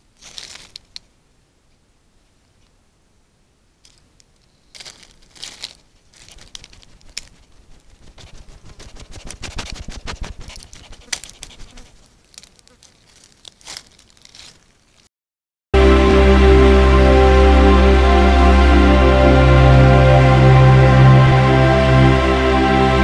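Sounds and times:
animal rustling in dry leaves: 0:00.0 - 0:01.1, 0:03.8 - 0:15.1.

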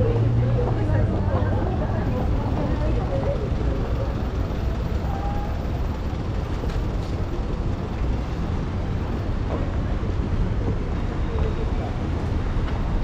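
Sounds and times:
low rumble of road traffic: 0:00.0 - 0:13.0.

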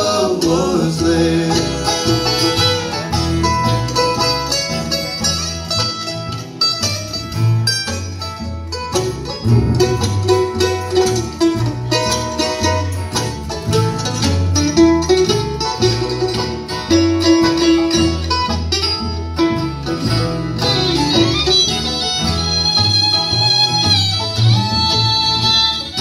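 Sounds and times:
banjo picking: 0:00.0 - 0:26.0
bluegrass band playing: 0:00.0 - 0:26.0
upright bass low notes: 0:00.0 - 0:26.0.

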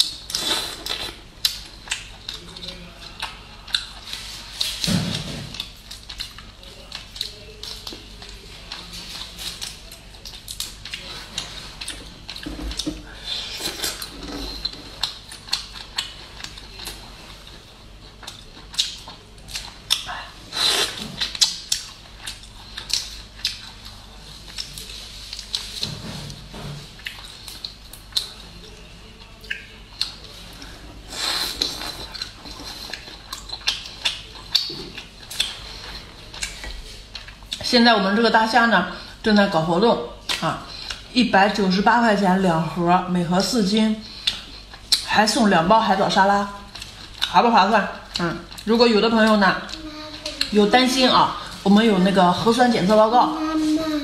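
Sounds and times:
wet chewing and lip smacks: 0:13.8 - 0:17.0, 0:18.2 - 0:20.2, 0:21.2 - 0:25.8, 0:29.2 - 0:30.3, 0:44.2 - 0:45.1.

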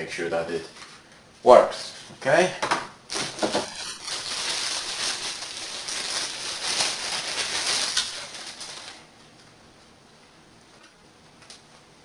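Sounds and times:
plastic wrapping crinkling: 0:03.1 - 0:09.5.

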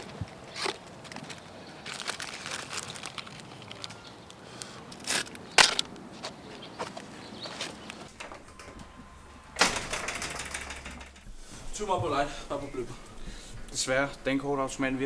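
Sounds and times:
cigarettes crunched underfoot: 0:00.0 - 0:08.1
cardboard pack crinkling: 0:00.5 - 0:04.1.

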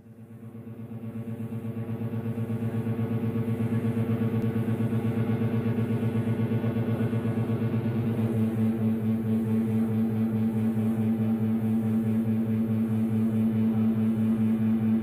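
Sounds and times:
throbbing music drone: 0:04.1 - 0:15.0.

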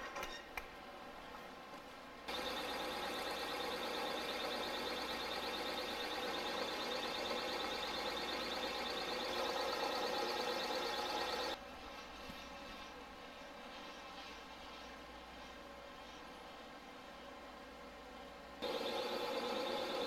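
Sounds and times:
milling machine whine: 0:02.3 - 0:11.6, 0:18.6 - 0:20.0.

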